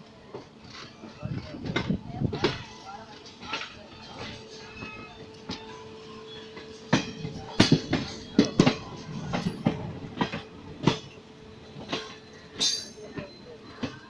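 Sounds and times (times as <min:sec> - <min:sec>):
train running rumble: 0:00.0 - 0:14.0
train wheels clacking over joints: 0:06.4 - 0:14.0.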